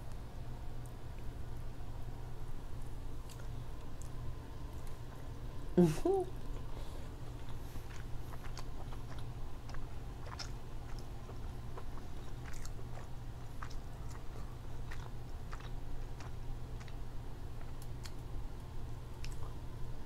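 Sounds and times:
low hum: 0:00.0 - 0:20.0
person chewing: 0:06.5 - 0:17.0, 0:19.2 - 0:19.6.

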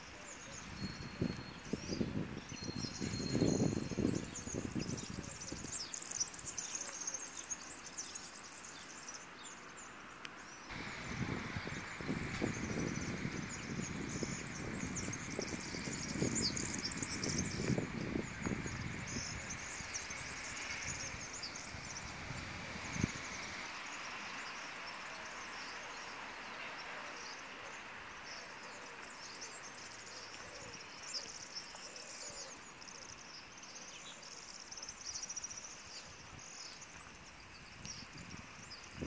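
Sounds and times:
faint background noise: 0:00.0 - 0:39.0
small birds twittering: 0:00.0 - 0:39.0.

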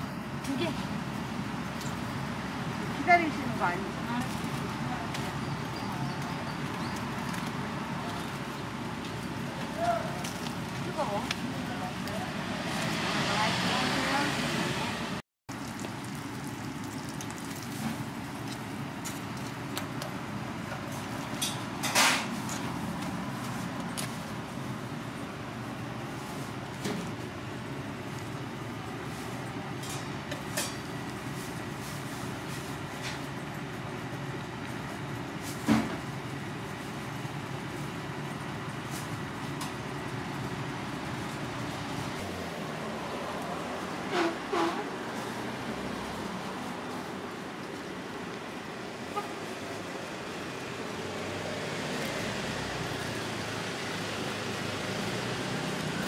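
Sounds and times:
kitchen background rumble and hiss: 0:00.0 - 0:56.0
oil sizzling: 0:15.5 - 0:21.6.

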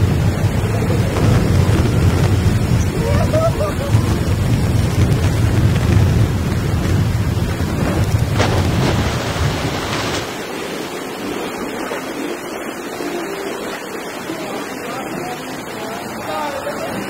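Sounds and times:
heavy low rumble: 0:00.0 - 0:10.8
wind buffeting microphone: 0:00.0 - 0:15.8
boat rushing through water: 0:00.0 - 0:17.0
running water: 0:00.0 - 0:17.0.

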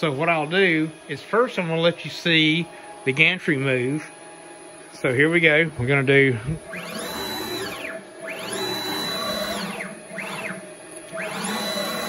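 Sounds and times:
stepper motors whining: 0:06.6 - 0:12.0.

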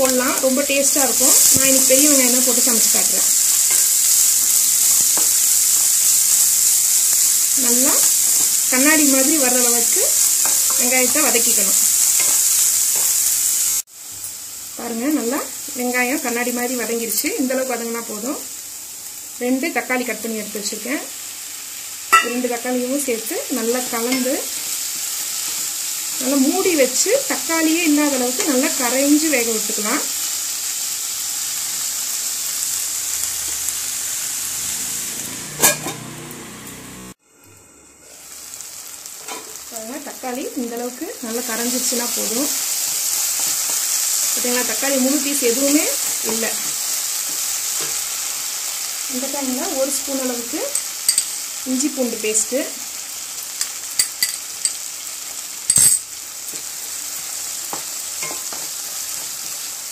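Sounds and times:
onions sizzling in oil: 0:00.0 - 0:59.9
metal lid clanking on pan: 0:35.6 - 0:36.0.

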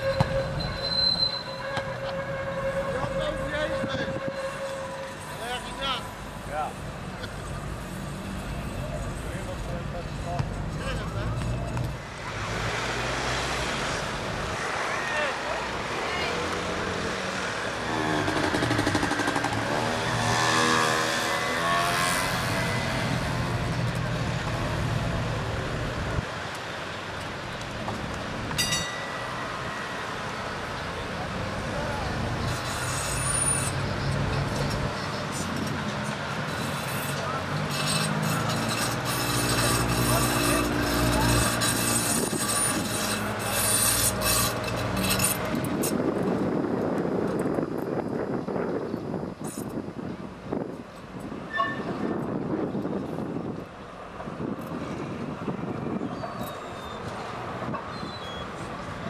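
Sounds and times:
tram wheels grinding on rails: 0:16.6 - 0:48.0.

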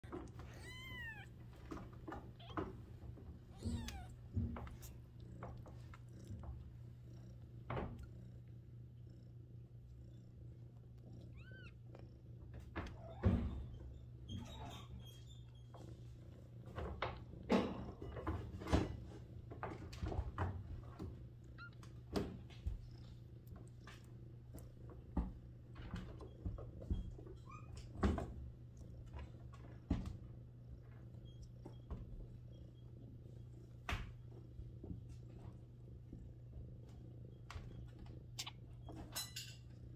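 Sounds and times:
kittens rustling and clicking: 0:00.0 - 0:08.6, 0:10.6 - 0:39.9
cat purring: 0:00.0 - 0:39.9
kitten squeak: 0:00.4 - 0:01.3, 0:03.5 - 0:04.2.

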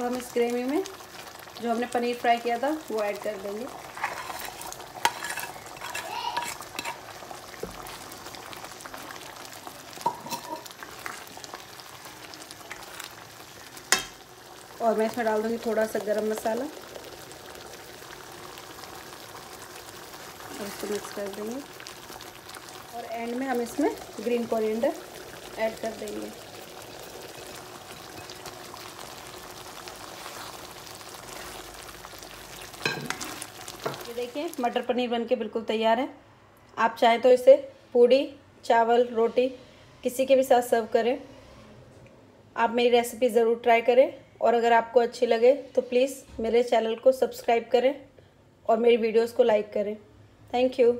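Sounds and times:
faint crackles: 0:00.0 - 0:34.8
curry simmering hiss: 0:00.0 - 0:35.1
spoon stirring in a pan: 0:03.7 - 0:14.2, 0:26.8 - 0:34.3
spoon scraping and clinking on plate: 0:04.0 - 0:07.0.

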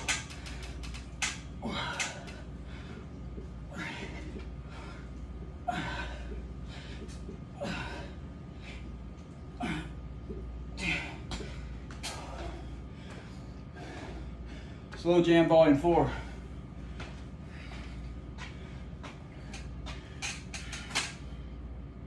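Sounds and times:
man exhaling and grunting: 0:01.6 - 0:02.5, 0:03.7 - 0:04.8, 0:05.6 - 0:06.4, 0:07.5 - 0:08.2, 0:09.6 - 0:10.1, 0:10.7 - 0:12.6.

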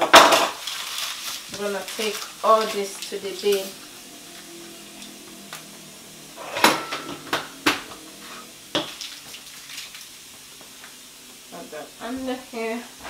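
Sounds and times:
dishes and utensils clinking: 0:06.4 - 0:10.1.

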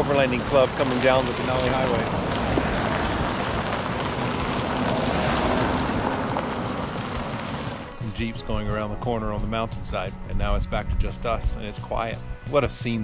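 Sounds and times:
tyres on gravel: 0:00.0 - 0:08.3
vehicle engines running: 0:00.0 - 0:08.9.

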